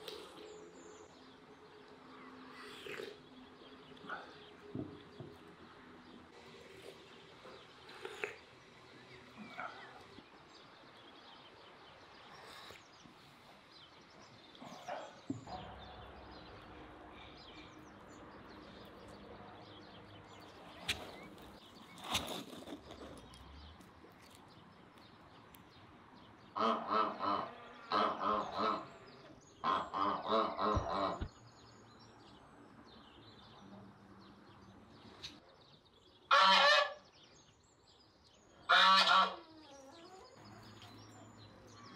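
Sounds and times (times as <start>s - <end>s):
faint yard noise: 0.0s - 41.9s
poultry calling: 20.3s - 22.4s, 26.5s - 29.0s, 29.6s - 31.3s, 36.3s - 37.1s, 38.7s - 41.9s.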